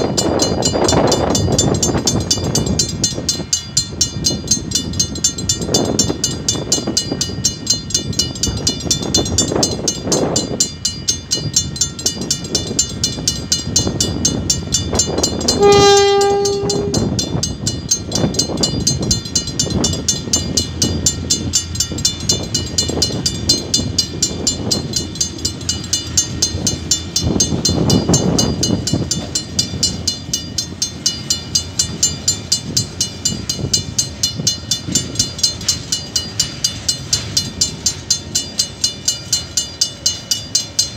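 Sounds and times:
train rumble: 0.0s - 40.9s
locomotive horn blast: 15.4s - 17.1s.

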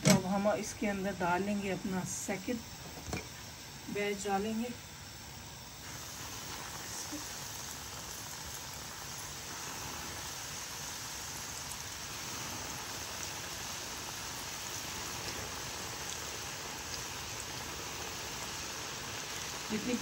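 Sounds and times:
chicken deep-frying in oil: 3.4s - 20.0s.

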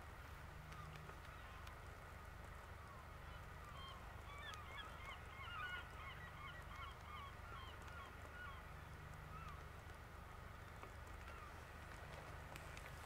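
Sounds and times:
flock of birds calling: 2.9s - 9.6s.

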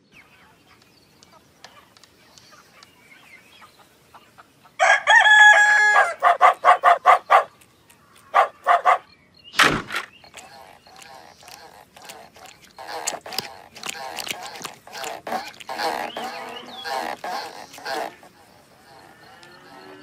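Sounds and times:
rooster crowing: 4.8s - 6.6s.

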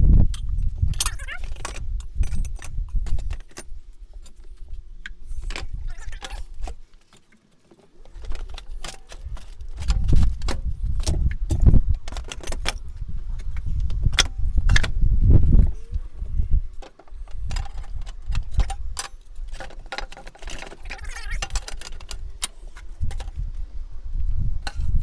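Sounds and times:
tools and boards clattering: 5.4s - 12.8s, 16.8s - 23.3s.

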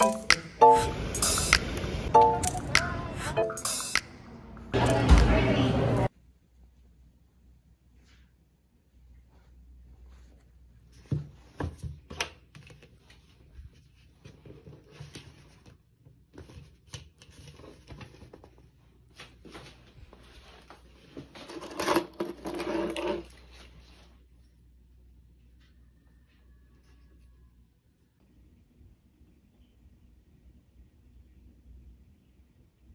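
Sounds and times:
cloth and paper rustling: 12.6s - 21.6s.

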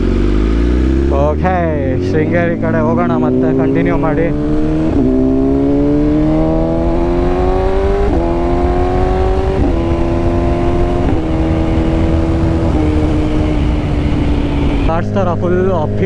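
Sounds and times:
motorcycle engine accelerating: 0.0s - 16.0s
wind on microphone: 3.3s - 14.9s.

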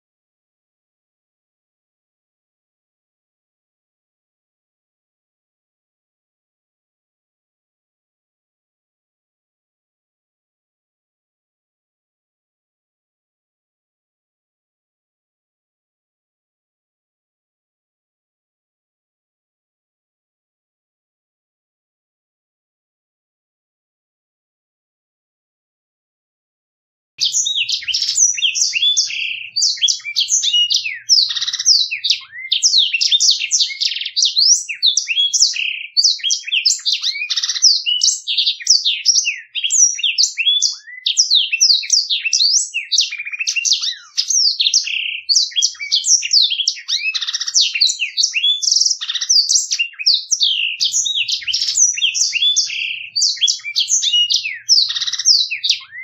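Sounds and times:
canary singing rapid rolling song: 27.2s - 56.0s.

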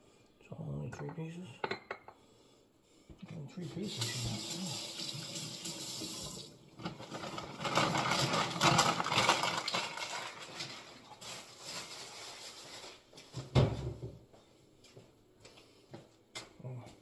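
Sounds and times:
rustling and scraping: 6.8s - 13.9s.

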